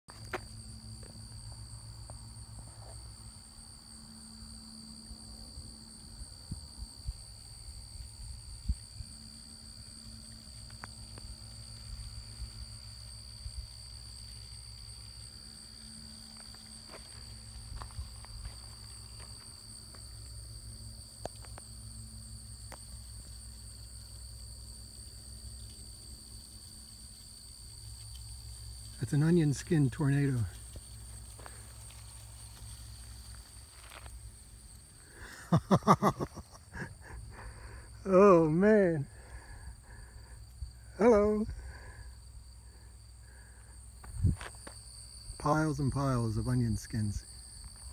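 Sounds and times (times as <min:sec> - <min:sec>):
insects droning: 0:00.1 - 0:47.9
wind rumbling on microphone: 0:05.6 - 0:10.5, 0:44.0 - 0:44.6.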